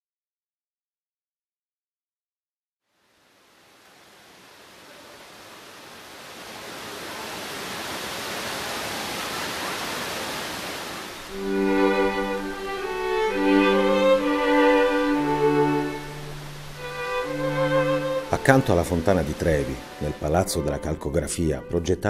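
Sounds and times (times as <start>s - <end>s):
fountain water rushing: 2.9s - 21.2s
bowed strings long notes: 11.3s - 22.0s.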